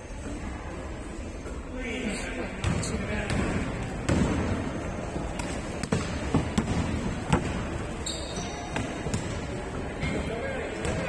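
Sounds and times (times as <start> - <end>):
basketball bouncing: 2.6 - 4.6, 5.4 - 9.5.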